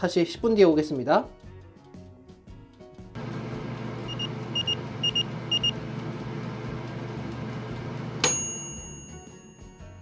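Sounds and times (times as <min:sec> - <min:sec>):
air fryer fan running: 0:03.2 - 0:08.6
short high beeps: 0:04.1 - 0:05.7
timer bell ding: 0:08.2 - 0:10.0.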